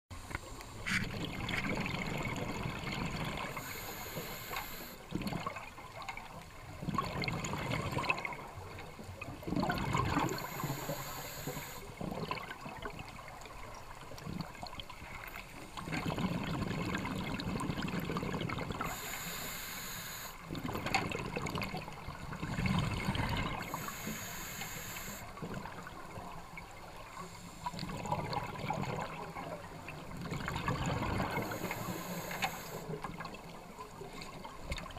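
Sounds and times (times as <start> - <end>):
exhaled bubbles gurgling underwater: 0.7 - 34.9
regulator inhalation hiss: 3.5 - 5.0, 10.3 - 11.9, 18.8 - 20.4, 23.7 - 25.3, 31.4 - 33.0.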